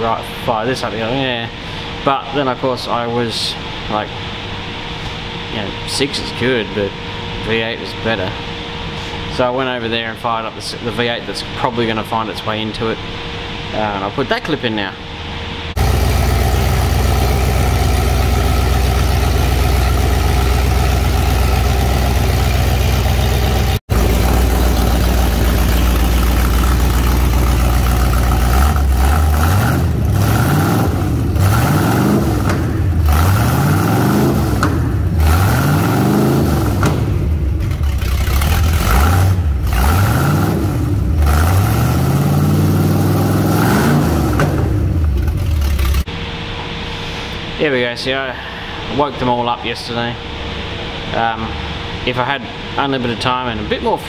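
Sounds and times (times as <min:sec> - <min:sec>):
engine throttle blips: 0:00.0 - 0:54.0
engine idling: 0:15.7 - 0:46.3.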